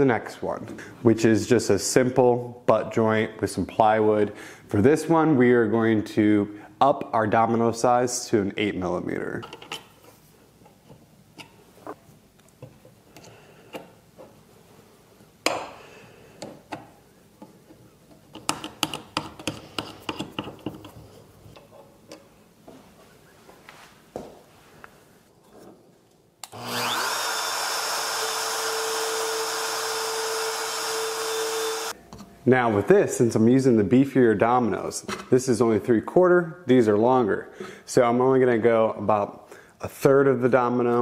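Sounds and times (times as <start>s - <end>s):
trim router whining: 26.4s - 31.9s.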